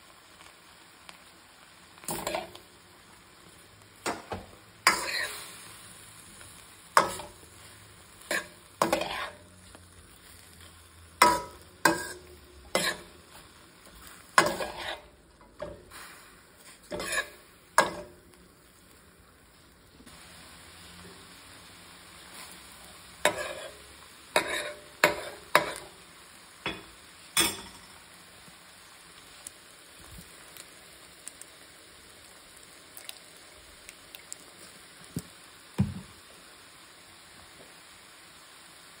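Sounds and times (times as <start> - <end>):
faint sizzle: 0.0 - 39.0
metal spoon scraping a pan: 2.1 - 2.6, 4.0 - 5.6, 7.0 - 9.5, 11.2 - 13.4, 14.0 - 16.0, 16.6 - 18.1, 23.2 - 25.9.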